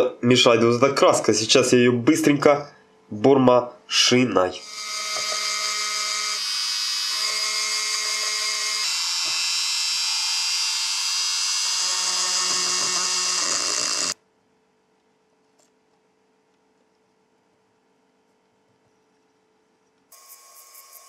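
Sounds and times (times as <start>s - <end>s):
rotary tool grinding metal: 4.6s - 14.2s.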